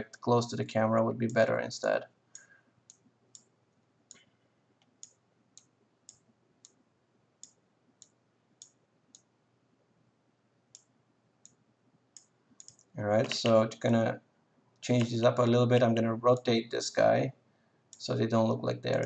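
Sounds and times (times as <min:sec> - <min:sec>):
computer mouse clicks: 0:02.3 - 0:03.5, 0:04.1 - 0:06.8, 0:10.7 - 0:13.6, 0:14.9 - 0:15.2.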